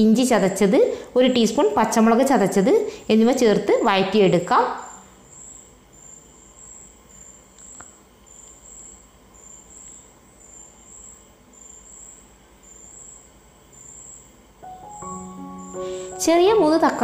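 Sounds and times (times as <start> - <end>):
insect chirping: 4.3 - 17.0.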